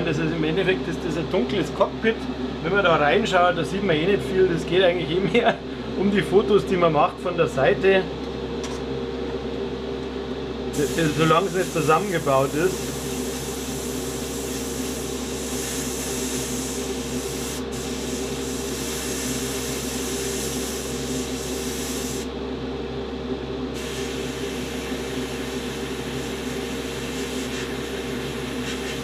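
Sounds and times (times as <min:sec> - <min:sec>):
steady low hum: 0:00.0 - 0:29.0
airbrush spraying hiss: 0:10.7 - 0:22.3, 0:23.8 - 0:29.0.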